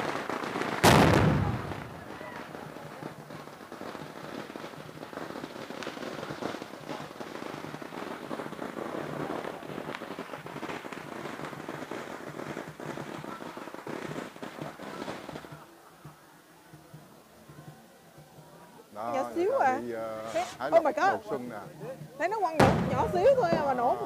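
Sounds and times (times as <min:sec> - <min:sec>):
firecrackers popping and crackling: 0:00.0 - 0:24.0.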